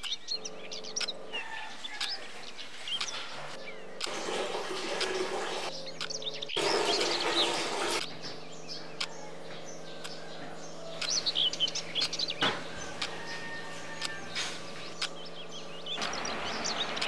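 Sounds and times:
sharp clicks: 0.0 - 1.2, 6.0 - 6.6, 8.0 - 16.2
small birds chirping: 0.0 - 17.0
steady low hum: 0.0 - 17.0
water running from a tap: 4.0 - 5.7, 6.6 - 8.2.

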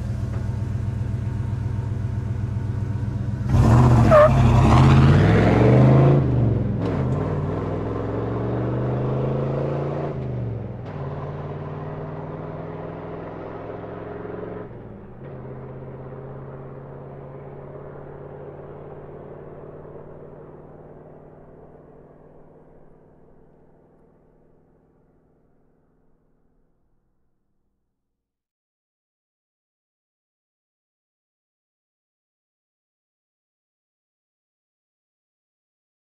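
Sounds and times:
pickup truck engine idling: 0.0 - 3.5
truck revving and pulling away: 0.0 - 24.0.

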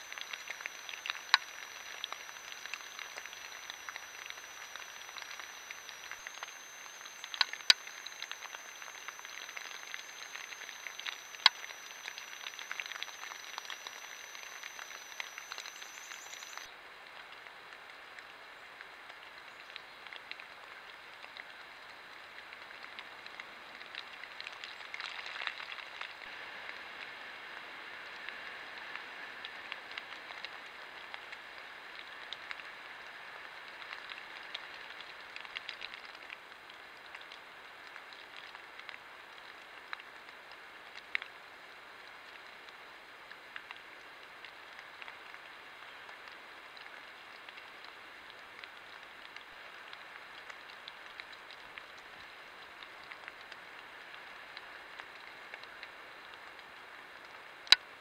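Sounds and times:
sharp clicks: 0.0 - 16.7
faint high electronic whine: 0.0 - 16.8
microphone hiss: 0.0 - 19.6
crackles: 0.0 - 58.0.

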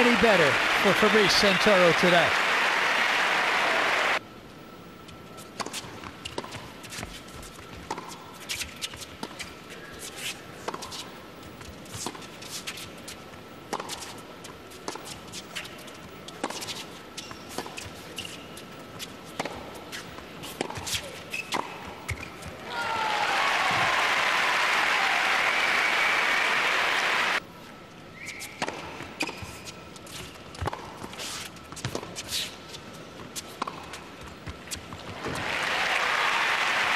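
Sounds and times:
crowd applauding: 0.0 - 4.2, 22.7 - 27.4, 35.1 - 36.9
low arena hush: 0.0 - 4.2
tennis ball bouncing: 7.9 - 8.1, 30.5 - 31.0, 33.6 - 34.6.

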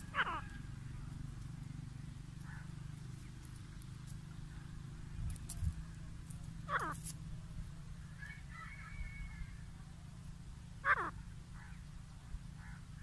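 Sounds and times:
francolins calling harshly: 0.0 - 1.2, 1.8 - 4.8, 6.6 - 7.1, 10.8 - 13.0
steady low hum: 0.0 - 13.0.

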